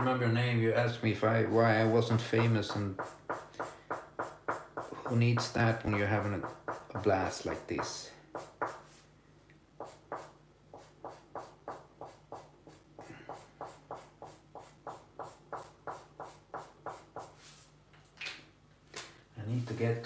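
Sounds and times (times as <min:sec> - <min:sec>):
marker scrubbing on paper: 0:01.4 - 0:09.1, 0:09.8 - 0:17.8.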